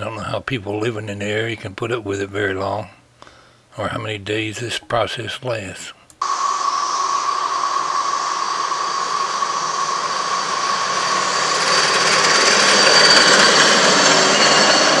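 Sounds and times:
cicadas droning: 6.2 - 15.0.

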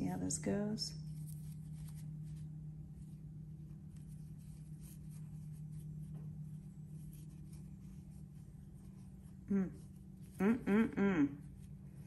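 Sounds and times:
steady low hum: 0.0 - 12.0
yarn scratching and rustling: 1.0 - 10.4.

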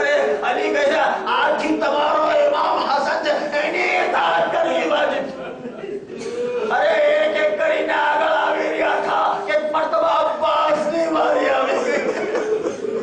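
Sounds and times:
crowd weeping and wailing: 10.4 - 13.0.

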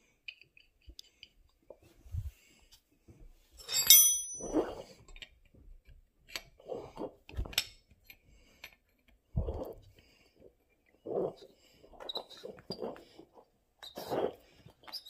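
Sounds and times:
wrench clinking: 3.6 - 4.6
metallic ring: 3.6 - 4.8.

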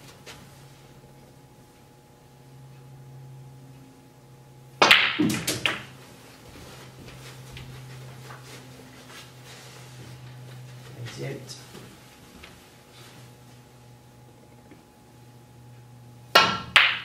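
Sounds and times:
ball dropping into pocket: 4.8 - 6.0
snooker balls clicking: 4.8 - 6.0, 16.3 - 17.0.

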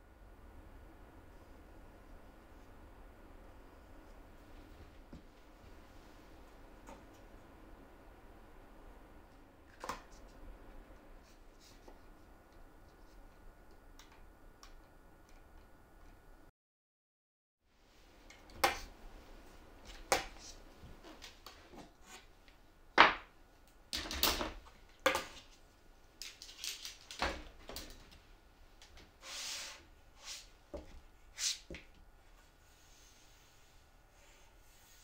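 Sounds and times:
short scrape: 29.2 - 30.5.

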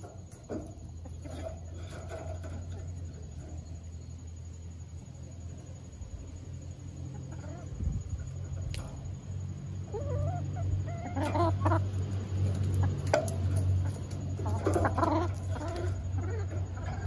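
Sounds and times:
hens clucking: 0.0 - 17.0
steady low hum: 0.0 - 17.0
short wavering hen calls: 9.8 - 11.9.

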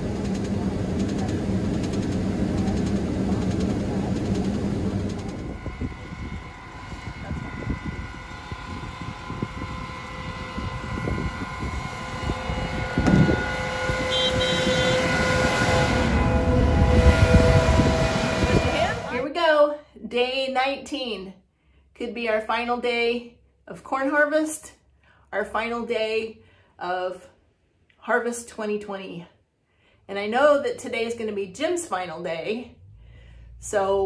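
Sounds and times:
uneven rumble: 0.0 - 19.3
combine engine drone: 0.0 - 19.4
passing combine hum: 0.0 - 19.4.

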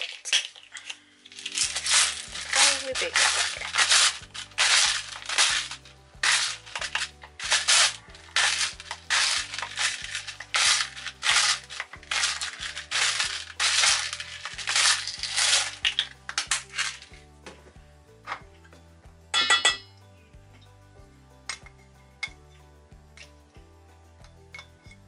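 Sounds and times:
salt grinder crunching: 0.0 - 17.2
background music with bass: 1.3 - 25.0.

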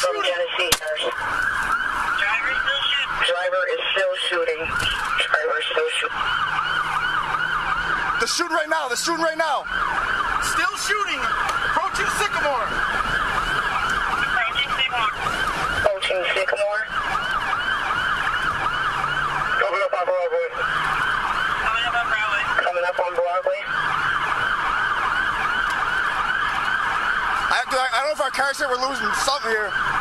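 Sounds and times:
police siren yelp: 0.0 - 30.0.

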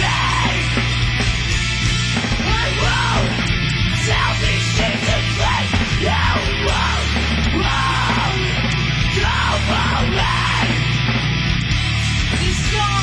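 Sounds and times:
singer shouting: 0.0 - 0.8, 2.4 - 11.0, 12.3 - 13.0
bass guitar: 0.0 - 13.0
distorted electric guitars: 0.0 - 13.0
drums: 0.0 - 13.0.

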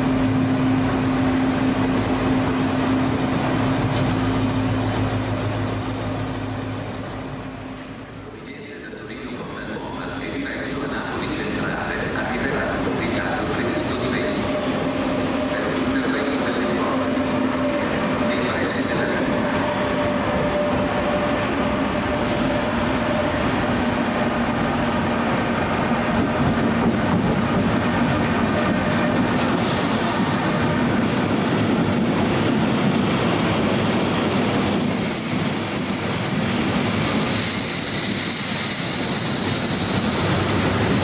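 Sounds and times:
train wheels rumbling on rails: 8.6 - 41.0
high wheel squeal: 22.2 - 27.0, 27.9 - 29.9, 33.8 - 41.0.

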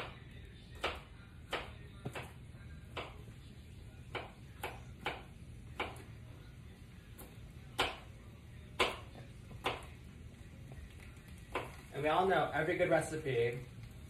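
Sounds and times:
knife chopping on cutting board: 0.8 - 2.4.

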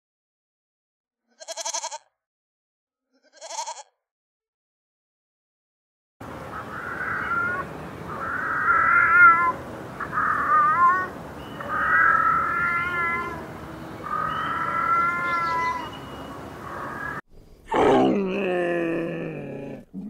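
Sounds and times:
cat meowing: 8.2 - 11.1, 11.7 - 13.4, 14.0 - 16.0.

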